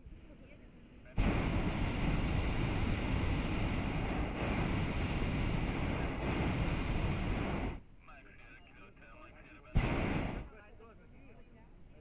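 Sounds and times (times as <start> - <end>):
propane burner blast: 1.2 - 7.8, 9.8 - 10.5.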